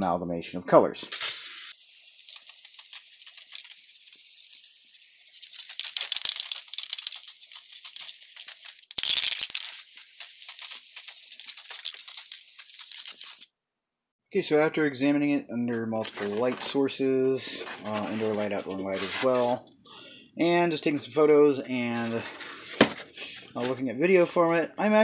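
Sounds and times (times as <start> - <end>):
aerosol spray can hissing: 1.1 - 13.5.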